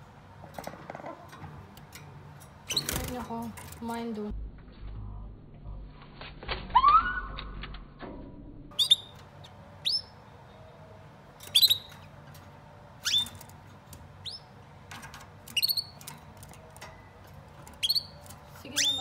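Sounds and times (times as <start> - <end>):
canaries chirping: 2.6 - 3.4, 8.7 - 14.7, 15.4 - 19.0.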